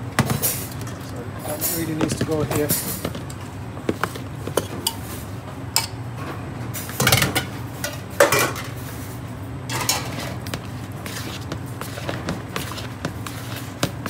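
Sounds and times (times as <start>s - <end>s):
rustling scraping bursts: 10.0s - 14.0s.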